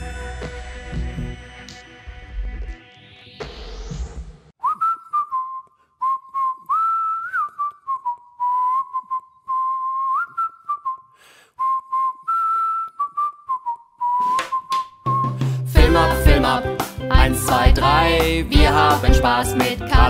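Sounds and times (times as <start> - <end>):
person whistling a tune: 4.6 - 16.5.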